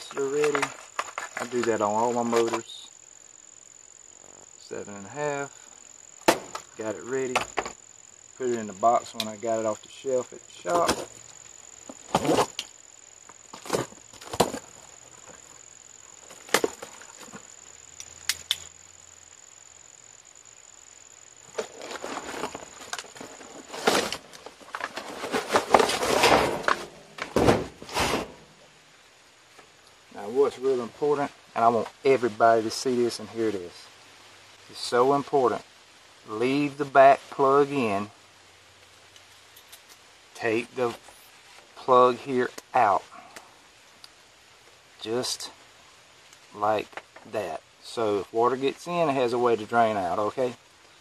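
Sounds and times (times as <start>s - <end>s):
high-pitched insect drone: 0.0s - 24.8s
cardboard knocks and scrapes: 11.9s - 12.6s, 21.5s - 28.4s.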